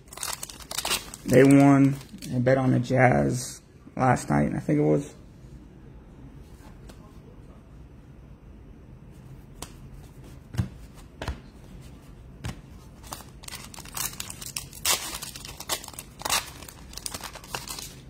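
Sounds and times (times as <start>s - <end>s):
card pack wrapper tearing: 0.1s - 2.3s, 13.0s - 18.0s.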